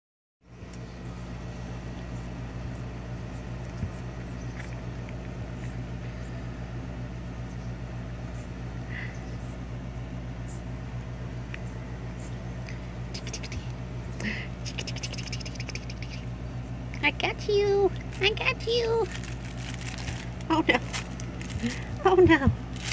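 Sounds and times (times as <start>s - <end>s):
steady low hum: 0.4s - 22.9s
rustling and scratching: 17.9s - 22.9s.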